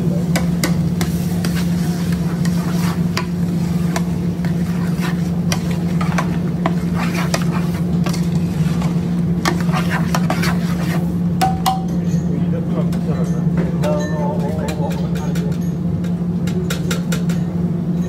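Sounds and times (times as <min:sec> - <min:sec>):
steady low hum: 0:00.0 - 0:18.0
metal spoon scraping a pot: 0:01.0 - 0:11.1.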